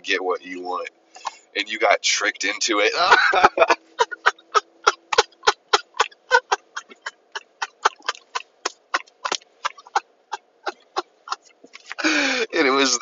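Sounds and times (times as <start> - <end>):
man laughing: 2.9 - 13.0.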